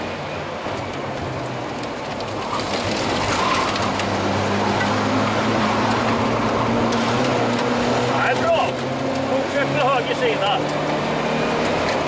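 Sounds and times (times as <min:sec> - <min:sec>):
car engine from inside cabin: 0:04.0 - 0:12.0.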